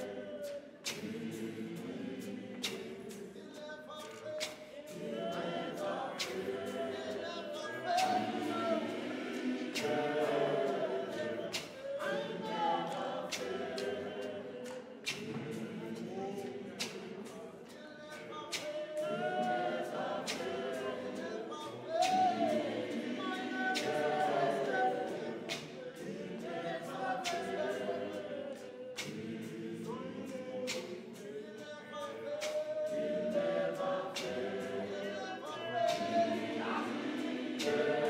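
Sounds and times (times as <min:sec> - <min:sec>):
women's choir singing gospel: 0:00.0 - 0:38.0
sharp steady beat: 0:04.9 - 0:14.3, 0:35.9 - 0:38.0.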